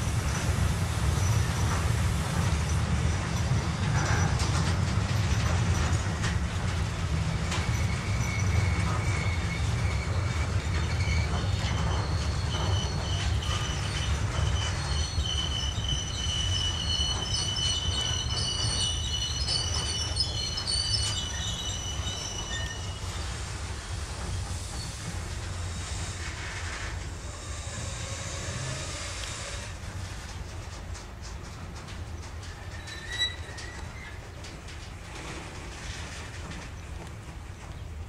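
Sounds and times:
train wagons rumbling past: 0.0s - 38.0s
high-pitched wheel squealing: 7.4s - 23.4s, 24.7s - 29.8s, 32.7s - 34.2s.

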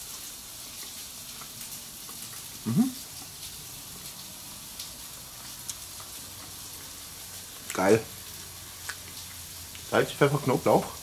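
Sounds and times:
faint hiss with light crackles: 0.0s - 11.0s
man humming mmm: 2.7s - 3.0s.

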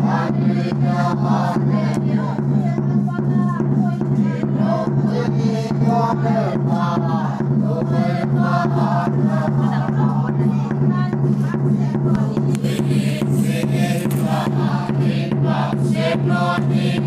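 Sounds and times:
congregation singing a hymn: 0.0s - 2.8s, 4.0s - 10.7s, 11.7s - 17.0s
steady low hum: 4.6s - 17.0s.

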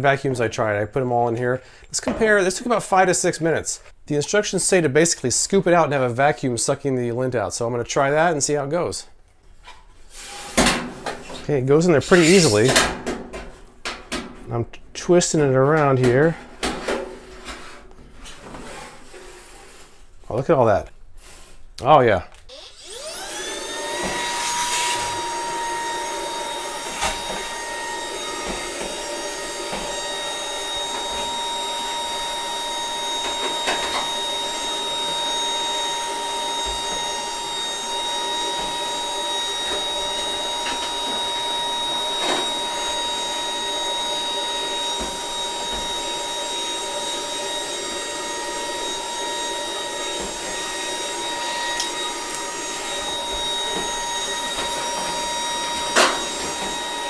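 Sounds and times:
vacuum cleaner whining: 10.1s - 13.2s, 22.4s - 57.0s
brush scraping: 12.0s - 12.7s, 17.1s - 20.3s, 21.2s - 21.7s.

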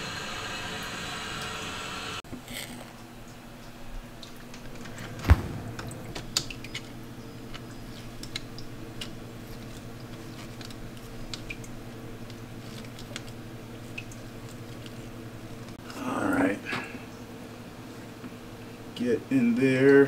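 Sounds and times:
steady low hum: 3.0s - 19.4s
light clicks of filter parts: 5.8s - 15.0s.

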